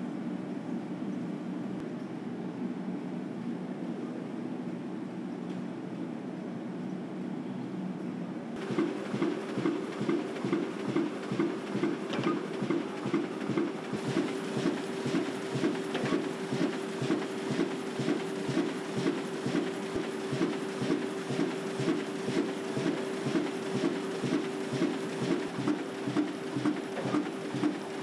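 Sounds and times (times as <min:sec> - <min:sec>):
machine hum: 0:08.6 - 0:28.0
printing press rhythmic clatter: 0:08.6 - 0:28.0.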